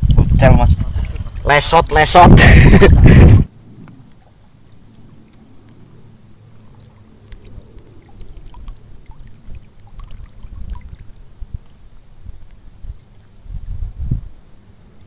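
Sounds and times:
wind rumble on microphone: 0.0 - 4.1, 7.2 - 15.0
water lapping and sloshing: 0.0 - 15.0
small water splashes and drips: 3.8 - 15.0.

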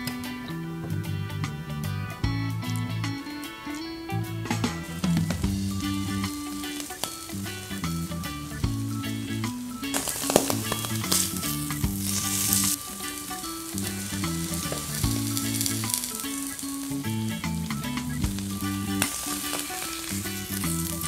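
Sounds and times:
food sizzling in a pan: 5.6 - 21.0
spatula scraping a pan: 10.0 - 16.7.

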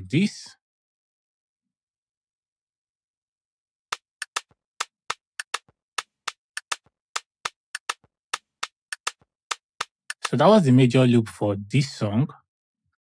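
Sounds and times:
percussion loop clicking hits: 3.9 - 10.5.

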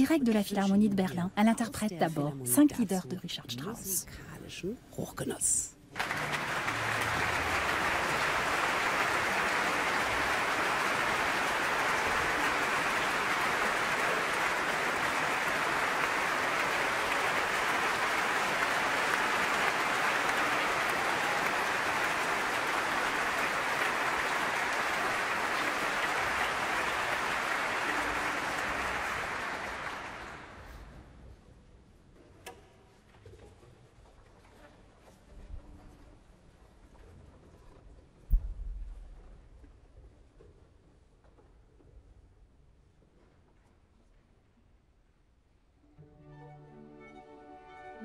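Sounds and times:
audience applauding: 5.9 - 30.9.

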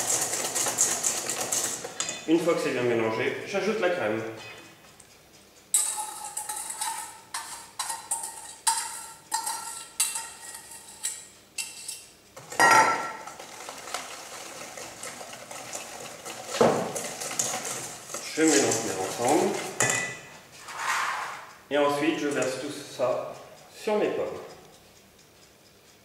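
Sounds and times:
metal bowls knocking together: 0.0 - 2.2, 5.8 - 11.7, 12.4 - 20.3
whisk beating in metal bowl: 0.0 - 3.0, 5.8 - 20.1
cream pouring into bowl: 13.3 - 19.6.

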